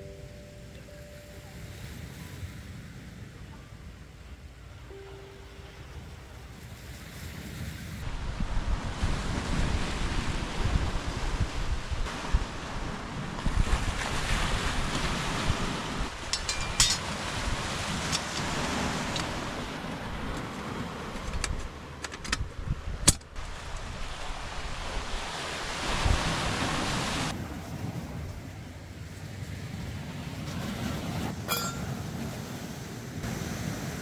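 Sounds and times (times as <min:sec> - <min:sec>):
sea waves washing ashore: 0:00.0 - 0:34.0
wind on microphone: 0:06.4 - 0:28.6.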